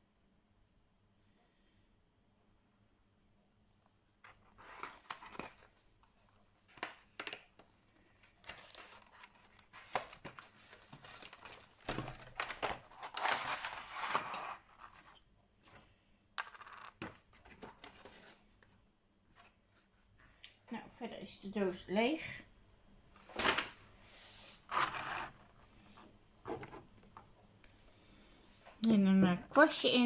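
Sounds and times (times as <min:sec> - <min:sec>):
cardboard tearing and crinkling: 0:04.6 - 0:05.7, 0:08.4 - 0:15.1, 0:24.7 - 0:25.5.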